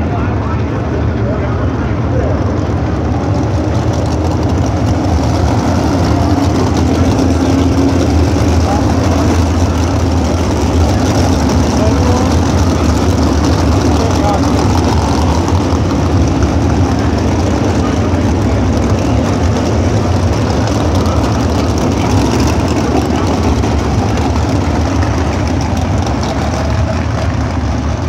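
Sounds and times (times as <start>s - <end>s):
race car engines roaring: 0.0s - 28.0s.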